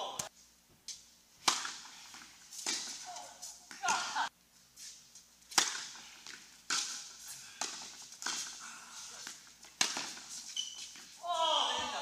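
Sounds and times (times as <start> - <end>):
rackets striking tennis ball: 0.9 - 4.3, 5.4 - 12.0
tennis ball bouncing on hard court: 1.4 - 3.0, 5.5 - 8.5, 9.3 - 11.1.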